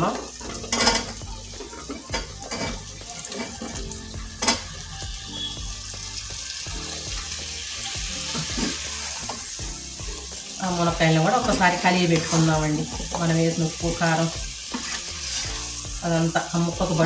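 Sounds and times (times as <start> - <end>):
food sizzling in a pan: 0.0 - 17.0.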